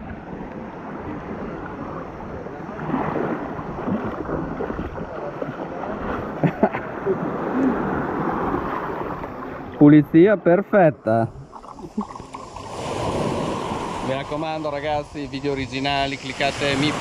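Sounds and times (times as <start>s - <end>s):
water lapping at shore: 0.0s - 17.0s
person wading: 1.1s - 9.8s, 11.3s - 14.4s.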